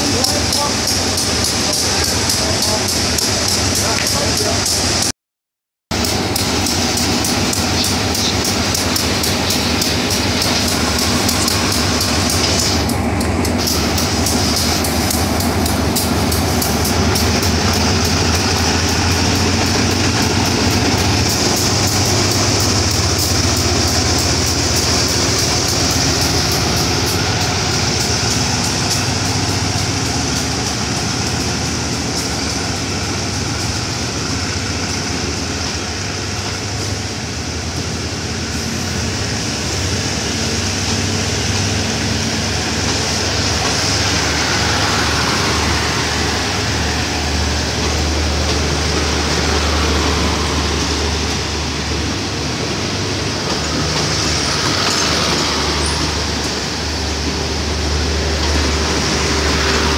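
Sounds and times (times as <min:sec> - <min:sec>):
locomotive engine humming: 0:00.0 - 0:05.1, 0:05.9 - 0:59.9
train wheels clicking on rails: 0:00.0 - 0:05.1, 0:06.0 - 0:59.9.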